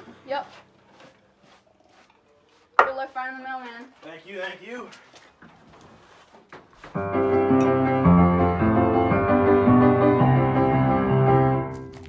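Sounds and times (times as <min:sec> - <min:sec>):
held music chords: 0:07.0 - 0:11.6.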